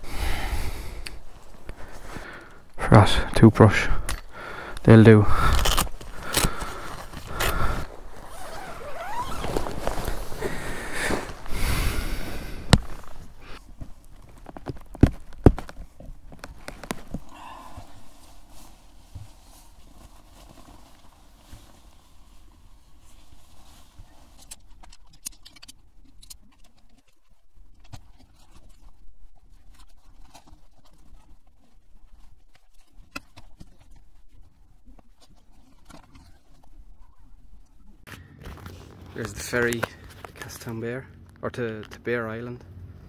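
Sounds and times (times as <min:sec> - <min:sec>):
tent fabric rustling: 0:05.2 - 0:25.0.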